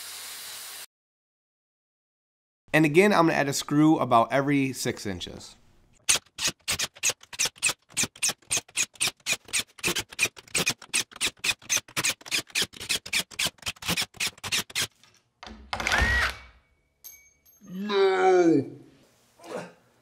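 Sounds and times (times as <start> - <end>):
impact driver driving screws: 6.0 - 15.0, 15.7 - 16.5.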